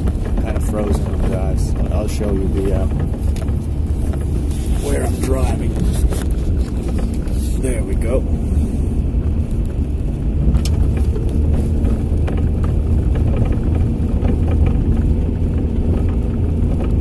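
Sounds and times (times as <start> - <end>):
light knocks and rattles: 0.0 - 8.2
car engine and tyre rumble: 0.0 - 17.0.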